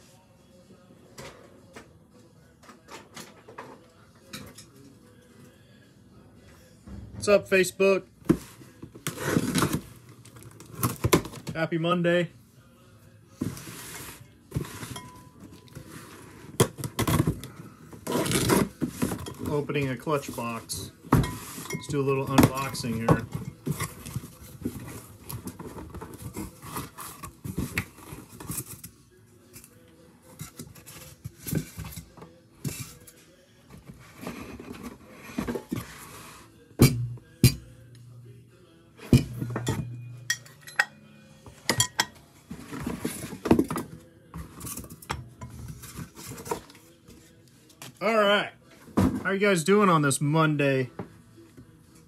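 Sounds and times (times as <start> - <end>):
cardboard scraping and rustling: 8.3 - 11.4, 22.4 - 28.8, 42.5 - 43.8.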